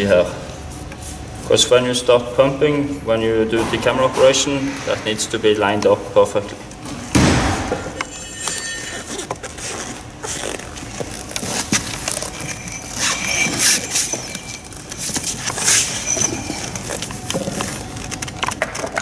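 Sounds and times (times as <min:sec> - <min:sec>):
metal tool parts clinking: 0:08.0 - 0:09.4, 0:11.4 - 0:18.9.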